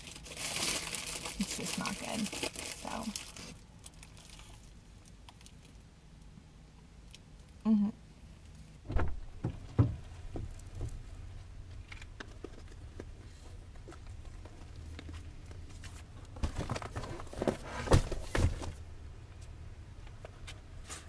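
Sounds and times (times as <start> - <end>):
shopping bags rustling: 0.0 - 4.6
low steady rumble: 0.0 - 21.0
items thudding down: 16.4 - 18.8.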